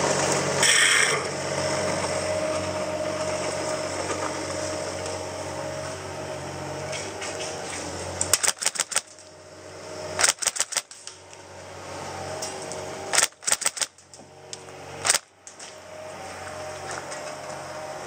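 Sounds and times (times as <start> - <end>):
airsoft rifle bursts of clacks: 8.3 - 9.2, 10.2 - 10.9, 13.1 - 14.0.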